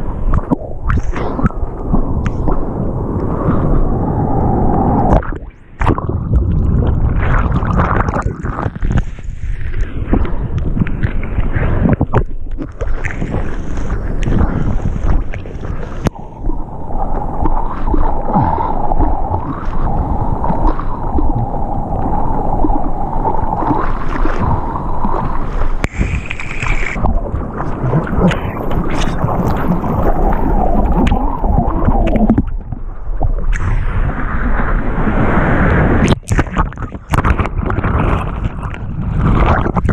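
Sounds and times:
muffled water rushing and gurgling: 0.0 - 39.9
waves splashing: 12.8 - 39.9.

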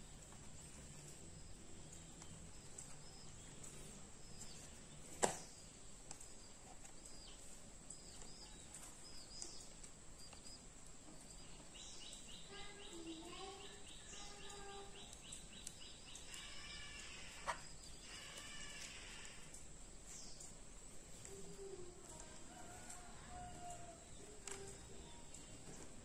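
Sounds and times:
birds chirping: 0.0 - 26.0
insect trilling: 11.3 - 19.7.

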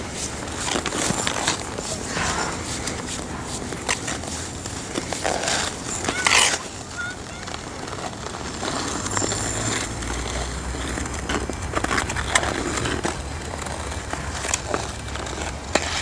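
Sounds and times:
scraping and crunching on icy snow: 0.0 - 16.0
low rumble: 1.6 - 5.9.

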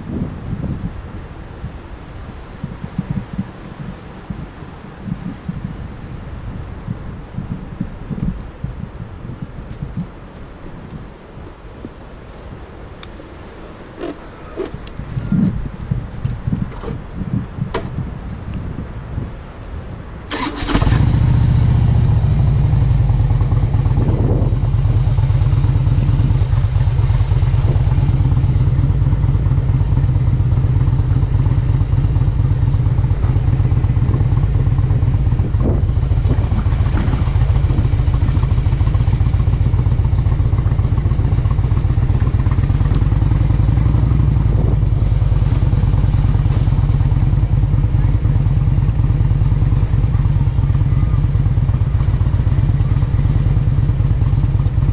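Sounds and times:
vehicle engine running loudly: 21.0 - 54.9.

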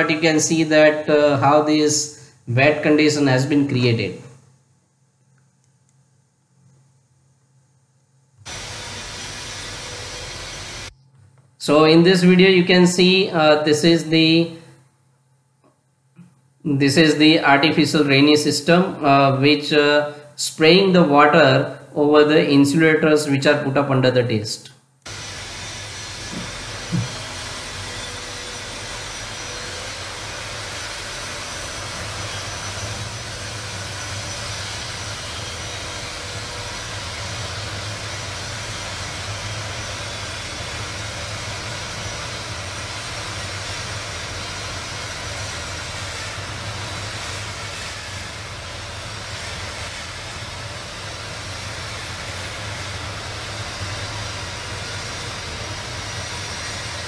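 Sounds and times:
water spray hissing: 8.5 - 10.9, 25.1 - 57.0.

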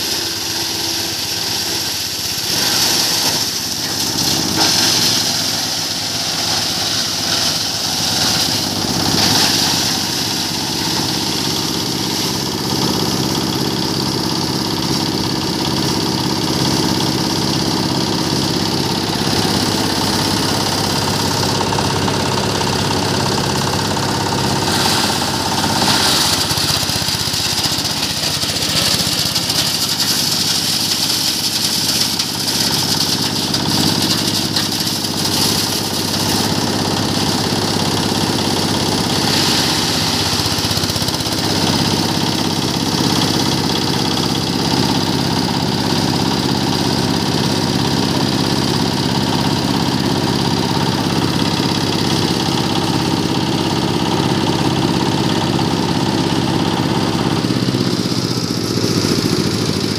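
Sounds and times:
chipper blades hissing: 0.0 - 43.2.

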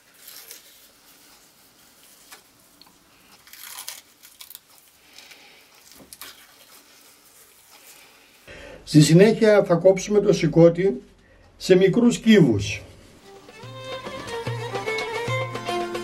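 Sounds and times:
wet tearing and squishing: 0.0 - 8.3.

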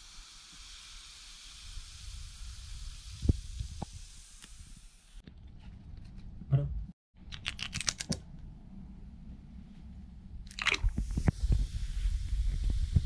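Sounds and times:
soda fizzing and foaming: 0.0 - 5.0, 10.5 - 13.0.

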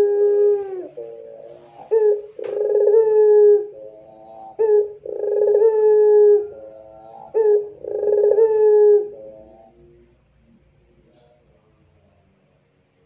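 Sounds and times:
dove cooing: 0.0 - 10.0.

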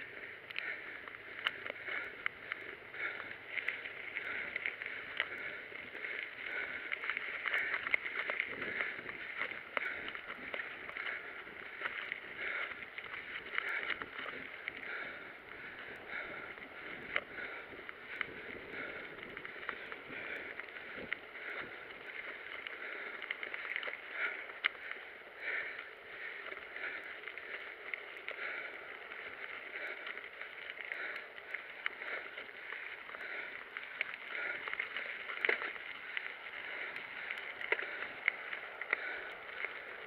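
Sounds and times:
bike tyres rolling on gravel: 0.0 - 40.0.

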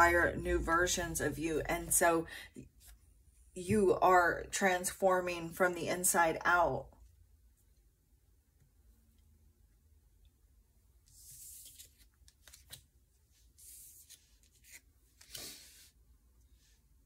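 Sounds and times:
cards sliding across cloth: 11.1 - 16.6.

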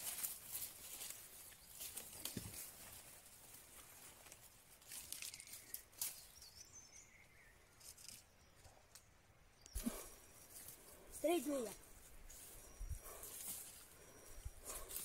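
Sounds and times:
soft rustles: 0.0 - 6.3, 9.8 - 15.0.

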